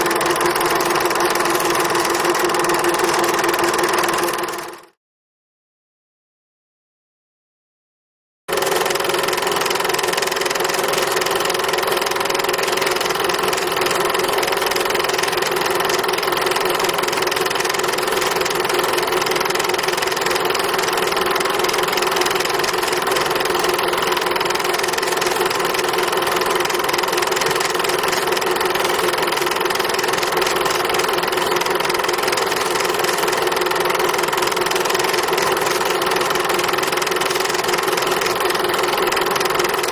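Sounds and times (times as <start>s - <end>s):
machine humming: 0.0s - 4.9s.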